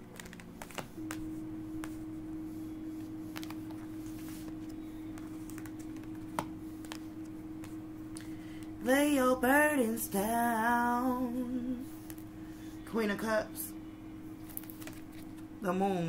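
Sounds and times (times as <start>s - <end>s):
cards shuffling and clicking: 0.0s - 2.0s, 3.0s - 7.8s, 14.4s - 15.4s
steady low hum: 0.0s - 16.0s.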